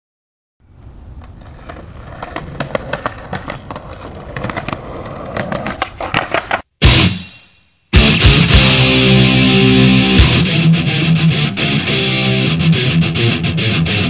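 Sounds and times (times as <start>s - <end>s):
skateboard rolling on pavement: 0.6s - 6.7s
skateboard clicks and knocks: 0.8s - 6.7s
loud skateboard clack: 1.1s - 6.6s.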